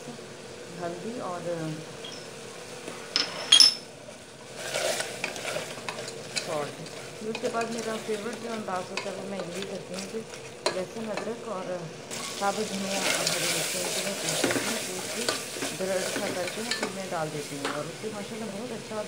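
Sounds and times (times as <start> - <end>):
meat sizzling: 3.8 - 19.0
spatula scraping a pot: 4.5 - 11.3, 12.1 - 17.0.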